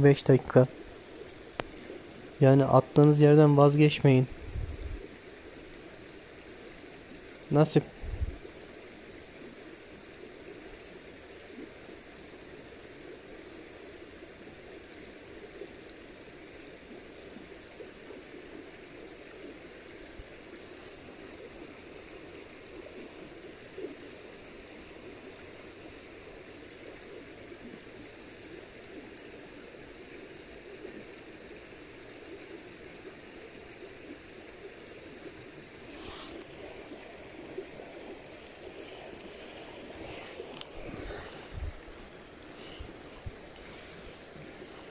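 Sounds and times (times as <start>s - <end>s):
river water flowing: 0.0s - 44.9s
faint ticks: 1.2s - 2.0s, 40.3s - 40.7s, 42.3s - 44.9s.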